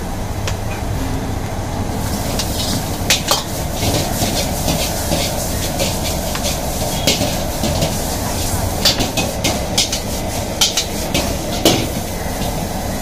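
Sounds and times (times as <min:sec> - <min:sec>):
gas burner rushing: 0:00.0 - 0:13.0
spatula clanking against wok: 0:02.3 - 0:08.0, 0:08.8 - 0:12.6.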